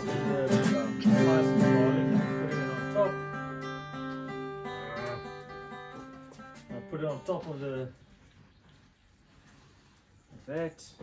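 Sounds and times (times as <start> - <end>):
strummed acoustic guitar: 0.0 - 7.8.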